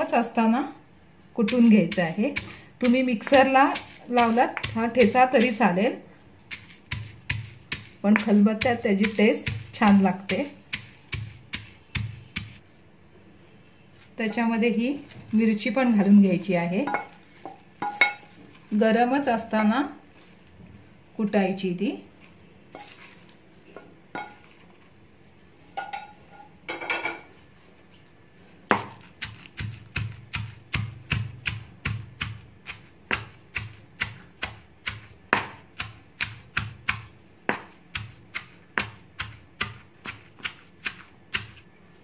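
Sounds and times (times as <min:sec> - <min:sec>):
stone pestle pounding in mortar: 0:01.5 - 0:05.8, 0:06.5 - 0:12.6, 0:16.8 - 0:18.3, 0:28.7 - 0:41.6.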